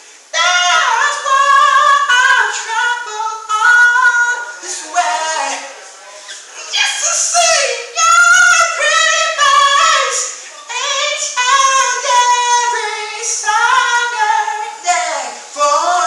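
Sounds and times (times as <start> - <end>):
singer breathing: 0.0 - 0.3, 10.3 - 10.7
woman singing a cappella: 0.2 - 5.9, 6.6 - 16.0.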